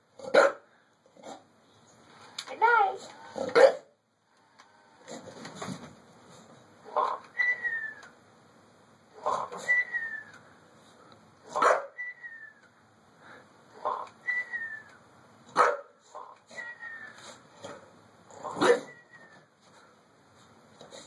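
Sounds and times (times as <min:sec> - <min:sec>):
toy parrot whistle: 0:07.3 - 0:08.1.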